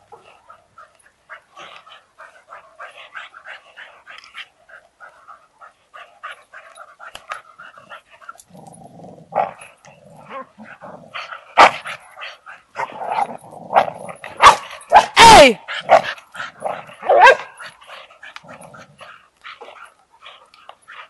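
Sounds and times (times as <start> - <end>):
dogs growling: 0.1 - 14.9, 15.6 - 21.0
deeper dog growl: 7.9 - 12.0, 12.7 - 14.4, 18.2 - 19.2.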